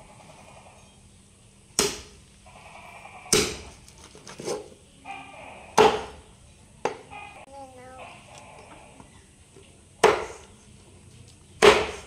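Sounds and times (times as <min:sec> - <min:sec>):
cleaver chopping on wooden block: 0:01.8 - 0:02.1, 0:10.0 - 0:10.4, 0:11.6 - 0:12.0.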